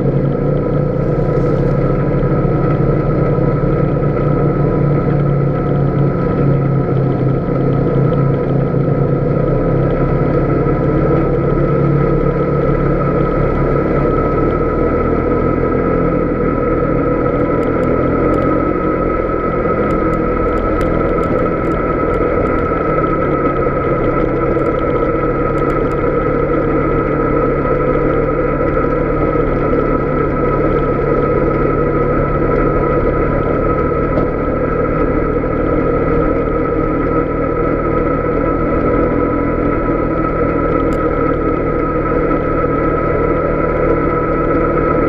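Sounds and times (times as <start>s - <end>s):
atv engine running: 0.0s - 45.0s.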